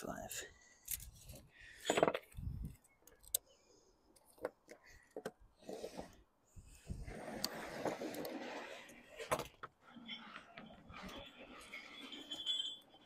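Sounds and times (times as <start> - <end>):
lead sheet scraping rustle: 7.0 - 9.2.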